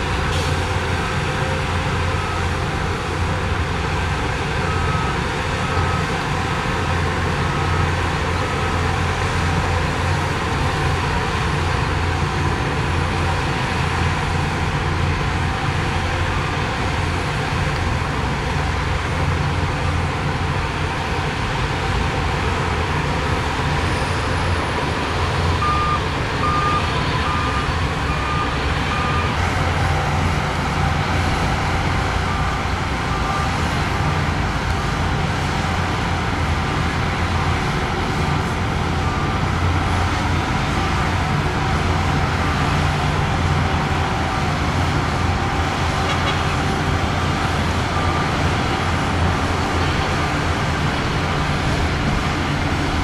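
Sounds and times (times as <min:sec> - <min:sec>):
heavy diesel machinery running: 0:00.0 - 0:53.0
reversing alarm beeping: 0:00.2 - 0:11.5, 0:23.0 - 0:34.2.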